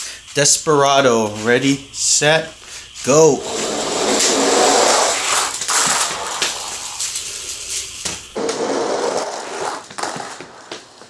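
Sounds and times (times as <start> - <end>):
toy wheels rolling on plastic track: 3.4 - 11.0.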